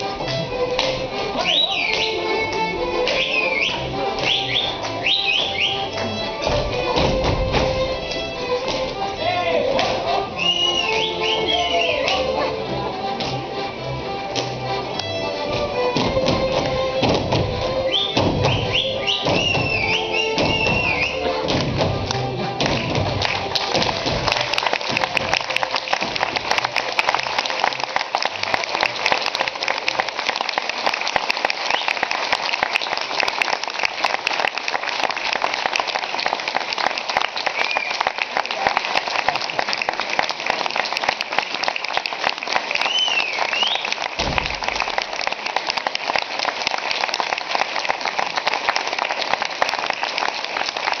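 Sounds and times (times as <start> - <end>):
audience applause: 0.0 - 51.0
low thump: 44.2 - 44.7.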